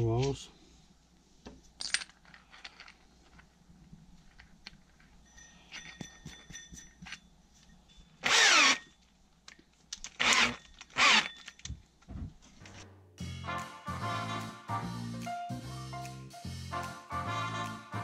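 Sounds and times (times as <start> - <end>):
metal parts clicking: 1.8 - 3.6, 8.2 - 11.8
cordless drill motor whining: 8.2 - 8.9, 10.2 - 11.5.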